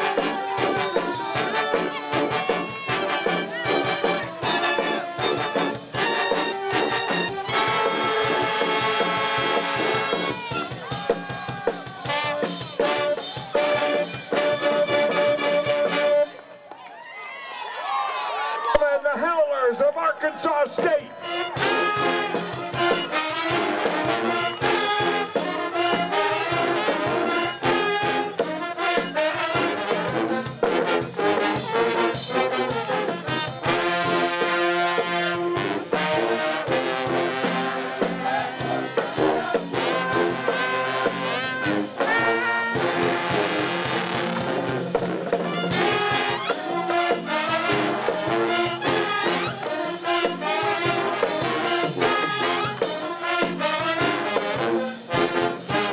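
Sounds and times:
steady driving beat: 0.0s - 16.1s, 36.7s - 54.0s
pep band playing: 0.0s - 16.6s, 19.0s - 55.9s
trombones and trumpets: 0.0s - 16.6s, 20.4s - 55.9s.

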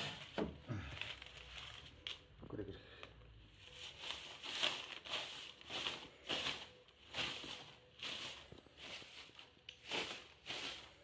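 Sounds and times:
broom scrubbing wood: 3.7s - 11.0s.

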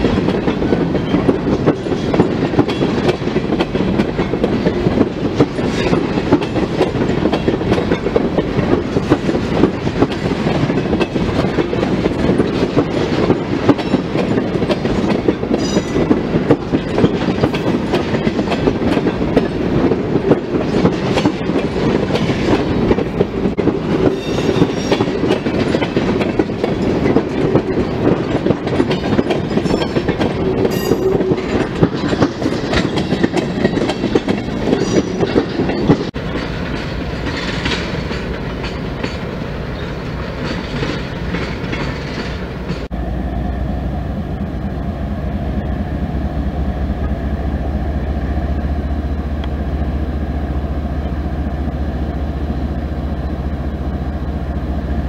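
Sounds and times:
steel wheels clicking over rail joints: 0.0s - 42.9s
diesel locomotive rumble: 0.0s - 55.0s
freight train rolling past: 0.0s - 55.0s.

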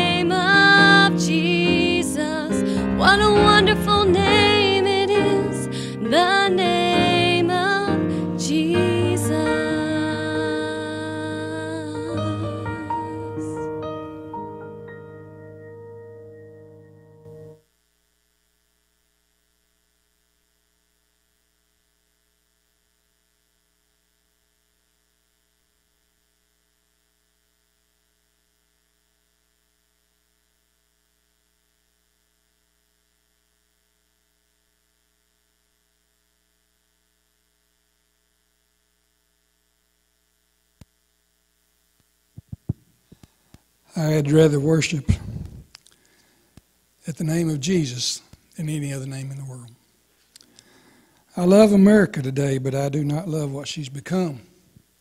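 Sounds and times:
piano accompaniment: 0.0s - 17.6s
faint electrical hum: 0.0s - 55.0s
click: 40.8s - 41.0s, 49.7s - 50.7s.

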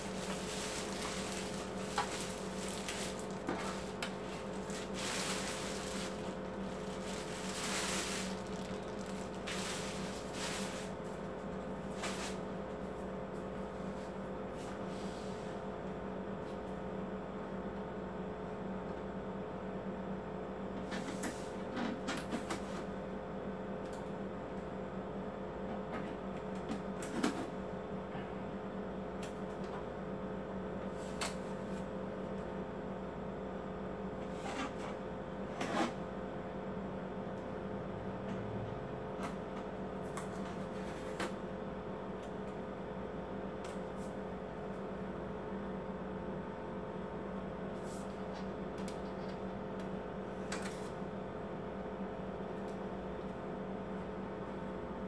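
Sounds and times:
electrical hum: 0.0s - 55.0s.

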